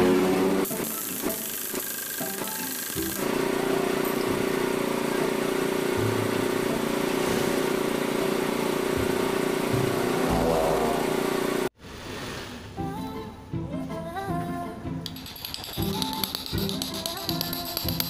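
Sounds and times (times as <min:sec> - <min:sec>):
steady motor drone: 0:00.0 - 0:01.5, 0:02.1 - 0:11.7.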